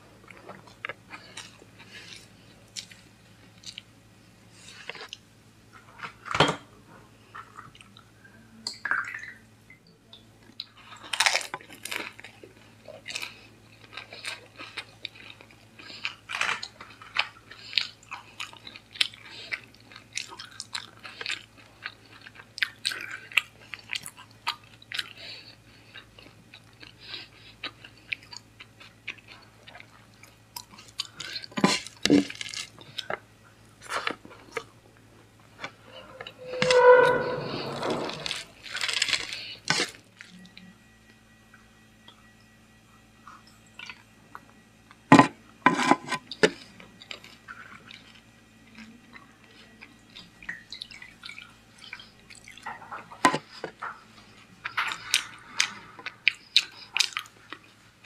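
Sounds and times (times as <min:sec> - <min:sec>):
food crunching: 0:04.6 - 0:05.2, 0:10.5 - 0:33.2, 0:38.2 - 0:40.6, 0:45.7 - 0:57.8.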